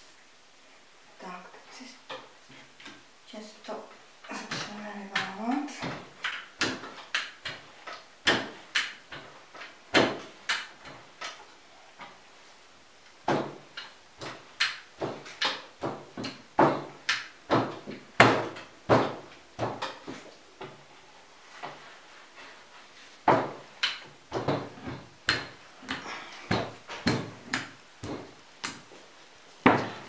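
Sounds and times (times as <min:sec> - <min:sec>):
rolling pin rolling dough: 0:13.2 - 0:30.0.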